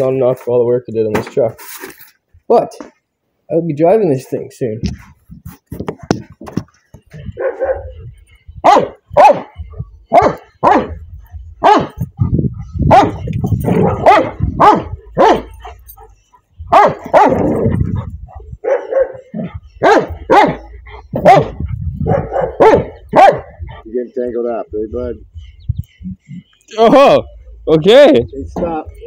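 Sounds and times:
dogs barking: 0:07.1 - 0:24.0
dogs growling: 0:11.6 - 0:24.0.

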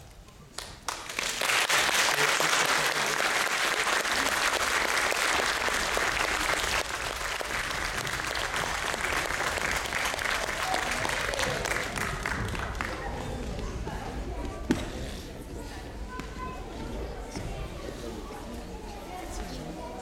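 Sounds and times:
audience applauding: 0:00.6 - 0:13.4.

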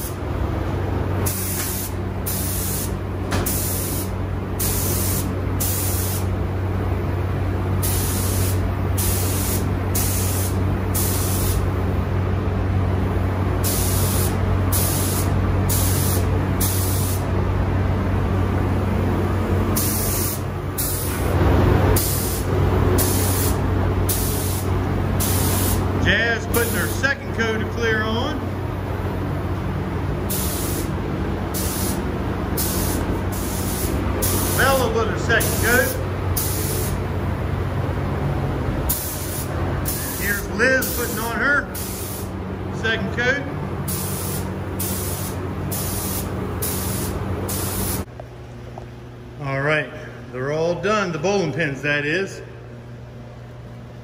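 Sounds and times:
spray gun hissing bursts: 0:00.0 - 0:00.2, 0:01.2 - 0:06.3, 0:07.8 - 0:11.8, 0:13.6 - 0:17.3, 0:19.8 - 0:27.1, 0:30.2 - 0:37.0, 0:38.9 - 0:42.4, 0:43.8 - 0:48.1
steady low hum: 0:00.0 - 0:54.0.

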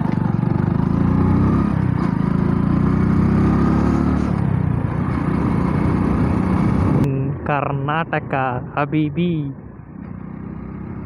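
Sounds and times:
motorcycle engine running: 0:00.0 - 0:07.1, 0:09.7 - 0:11.0
wind and road noise: 0:00.0 - 0:11.0.

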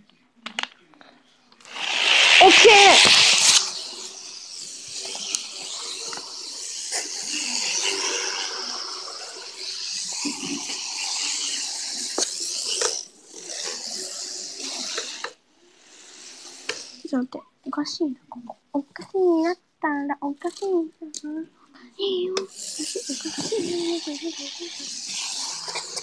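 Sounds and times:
model train whirring: 0:01.6 - 0:17.3, 0:20.4 - 0:20.9, 0:22.4 - 0:26.0.

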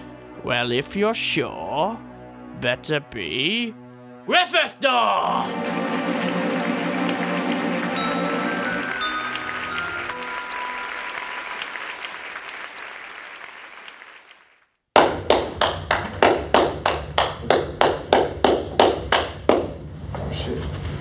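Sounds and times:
music: 0:00.0 - 0:13.0
applause: 0:05.4 - 0:19.7
rhythmic hand clapping: 0:05.4 - 0:19.8.

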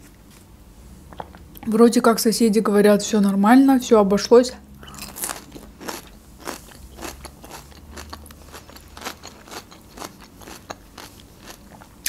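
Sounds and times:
chewing crisp flatbread: 0:04.8 - 0:12.0.

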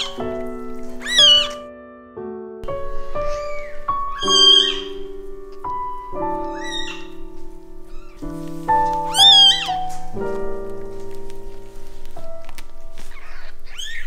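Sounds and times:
soft piano music: 0:00.0 - 0:14.0
kitten mewing: 0:01.0 - 0:01.6, 0:03.4 - 0:05.0, 0:09.1 - 0:09.8.

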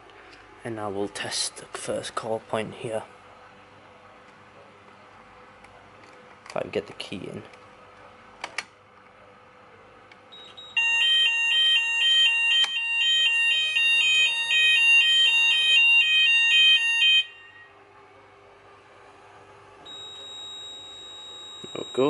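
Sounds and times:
fire alarm two-tone warble: 0:10.3 - 0:17.8, 0:19.9 - 0:22.0
high single-tone beep: 0:19.9 - 0:22.0.

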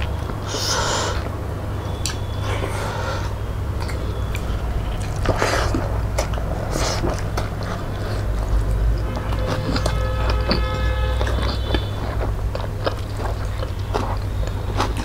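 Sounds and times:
steady low hum: 0:00.0 - 0:15.0
chewing and wet mouth smacks: 0:01.9 - 0:02.6, 0:03.8 - 0:15.0.

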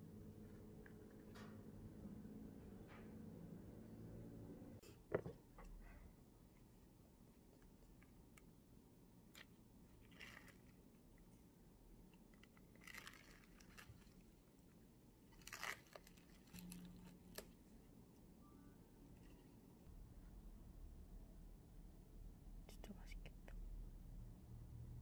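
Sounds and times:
plastic film crinkling: 0:10.0 - 0:10.8, 0:12.5 - 0:14.6, 0:15.3 - 0:17.6.

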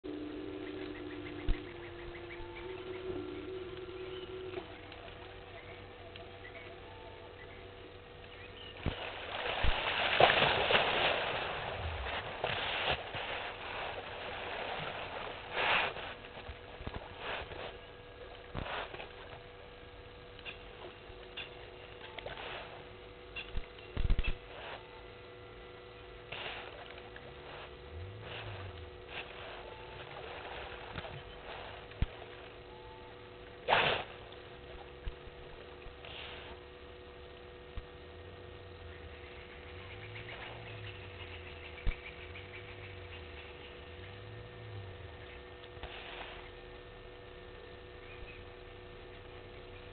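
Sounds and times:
faint steady hum: 0:00.0 - 0:49.9
water splashing and churning: 0:07.9 - 0:19.7, 0:26.3 - 0:32.7.

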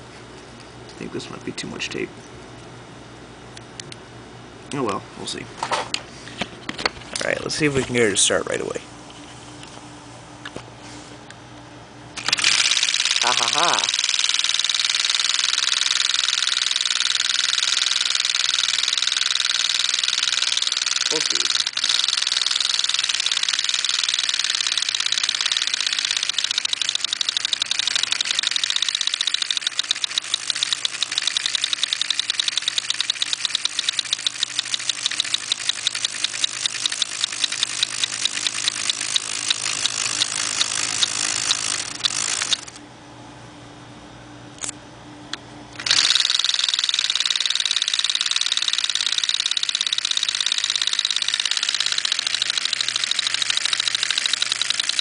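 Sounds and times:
fan humming: 0:00.0 - 0:55.0
clicks: 0:15.7 - 0:42.8.

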